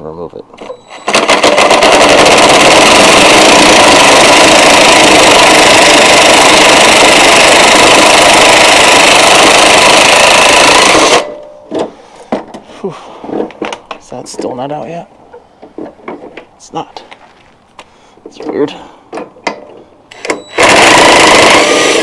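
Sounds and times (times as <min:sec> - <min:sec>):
impact wrench hammering: 0:00.6 - 0:12.5, 0:19.1 - 0:22.0.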